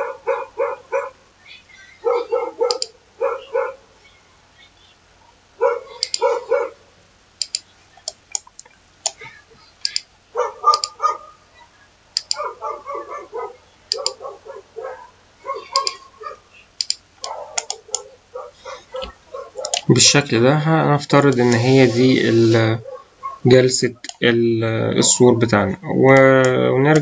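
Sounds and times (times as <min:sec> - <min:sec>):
dog yapping: 0:00.0 - 0:01.2, 0:02.0 - 0:03.9, 0:05.6 - 0:06.8, 0:10.3 - 0:11.4, 0:12.2 - 0:16.5, 0:17.2 - 0:19.9, 0:22.8 - 0:23.5
computer mouse clicking: 0:02.7 - 0:02.9, 0:06.0 - 0:06.3, 0:07.4 - 0:10.1, 0:10.7 - 0:11.0, 0:12.2 - 0:12.5, 0:13.9 - 0:14.2, 0:15.7 - 0:16.0, 0:16.8 - 0:18.1, 0:19.0 - 0:19.9, 0:26.4 - 0:27.0.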